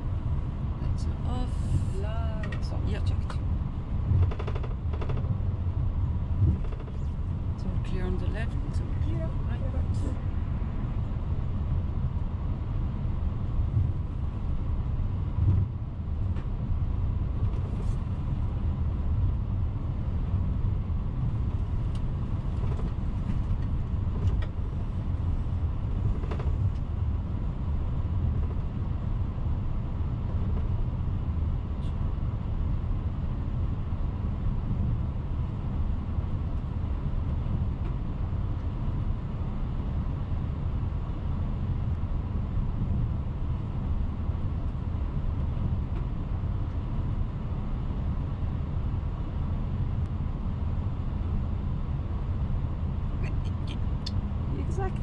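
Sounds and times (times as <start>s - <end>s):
low engine rumble: 0.0s - 55.0s.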